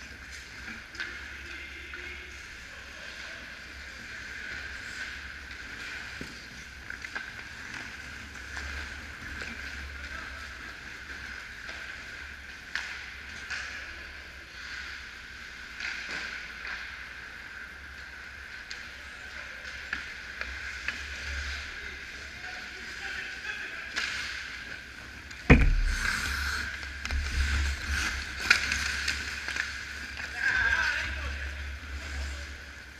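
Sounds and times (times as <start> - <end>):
hockey sticks and pucks clacking: 0.0 - 32.9
arena hiss and hum: 25.5 - 29.5.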